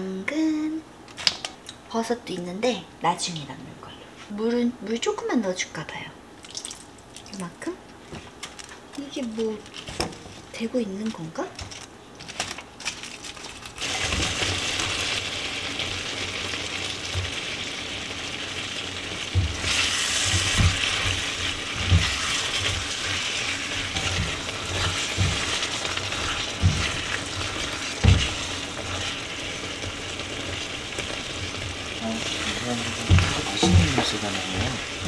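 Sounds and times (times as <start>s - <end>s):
food sizzling in a wok: 13.8s - 35.0s.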